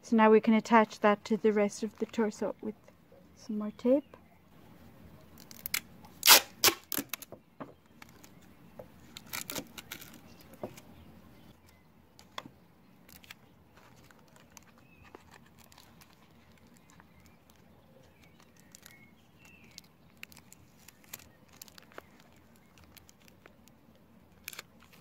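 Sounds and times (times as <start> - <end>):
tape crinkling: 5.3 - 7.3, 7.9 - 10.9, 13.0 - 25.0
adhesive tape ripping off roll: 5.4 - 7.3, 9.1 - 10.2.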